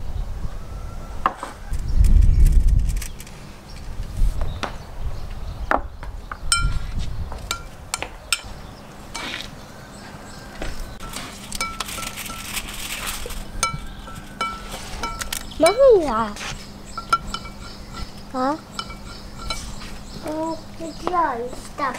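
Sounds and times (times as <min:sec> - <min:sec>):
metal spoon clinking glass bowl: 0:11.0 - 0:12.7, 0:13.6 - 0:15.9, 0:17.0 - 0:18.1, 0:18.7 - 0:19.8.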